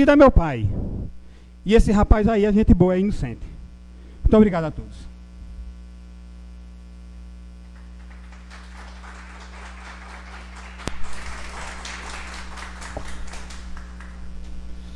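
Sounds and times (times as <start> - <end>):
electrical hum: 0.0 - 14.9
applause: 7.6 - 14.5.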